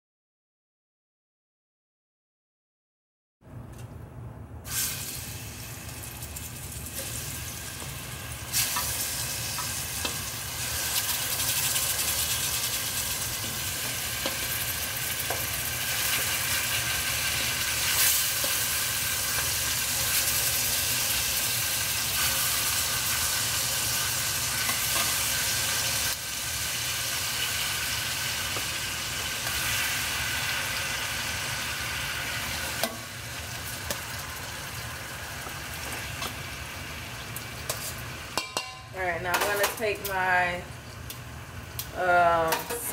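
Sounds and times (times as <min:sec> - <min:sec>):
chicken sizzling in hot oil: 0:04.7 - 0:38.8.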